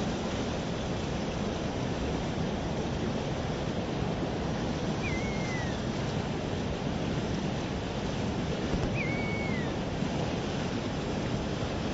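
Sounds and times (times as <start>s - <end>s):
fast-flowing river rushing: 0.1s - 11.9s
bird whistle falling in pitch: 5.0s - 5.8s, 8.8s - 9.8s.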